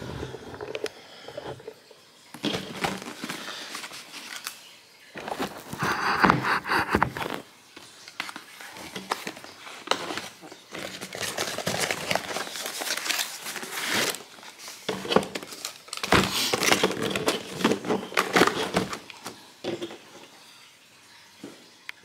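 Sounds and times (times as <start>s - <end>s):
cardboard rustling and scraping: 2.4s - 4.6s, 5.2s - 20.1s.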